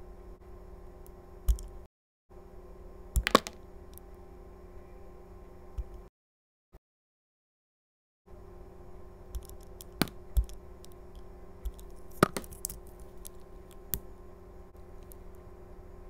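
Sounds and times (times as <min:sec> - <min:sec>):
steady low hum: 0:00.0 - 0:06.1, 0:08.3 - 0:16.0.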